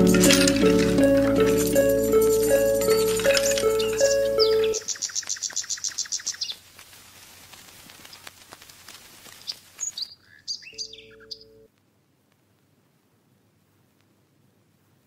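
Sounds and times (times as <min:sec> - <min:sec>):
birds chirping: 0:00.0 - 0:06.6, 0:09.4 - 0:11.7.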